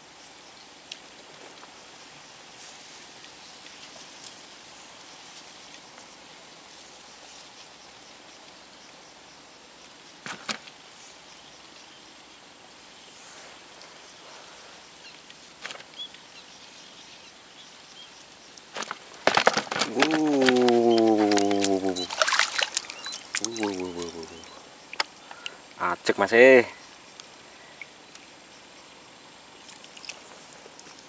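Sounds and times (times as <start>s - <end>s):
insect drone: 0.0s - 31.0s
float splashing from water: 19.8s - 24.4s.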